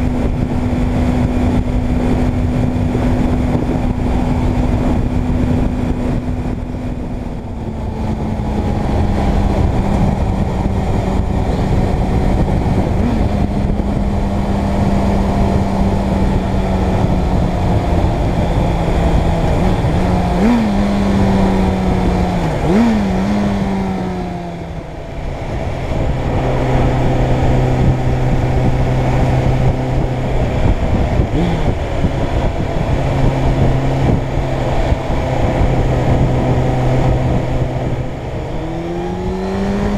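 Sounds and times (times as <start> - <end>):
motorcycle engine running: 0.0 - 39.9
wind and road noise: 0.0 - 39.9.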